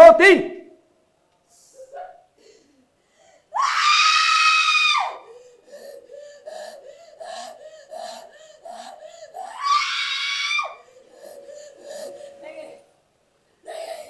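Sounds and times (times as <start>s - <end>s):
woman screaming: 3.5s - 5.3s, 9.4s - 10.9s.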